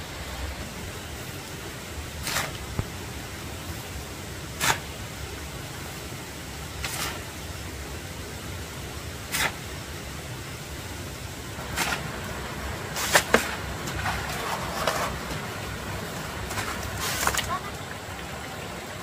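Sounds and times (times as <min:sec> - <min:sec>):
steady low rumble: 0:00.0 - 0:19.0
stone scrapes and knocks: 0:13.0 - 0:15.4, 0:16.4 - 0:17.5.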